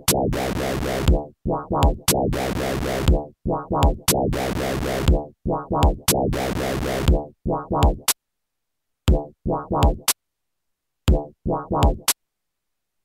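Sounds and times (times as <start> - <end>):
deep kick drum: 1.1 - 2.4, 3.1 - 4.4, 5.1 - 6.4, 9.1 - 10.0.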